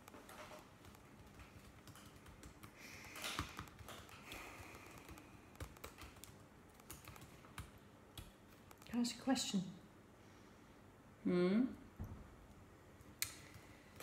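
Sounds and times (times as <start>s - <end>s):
laptop keyboard clicking: 0.0s - 9.0s.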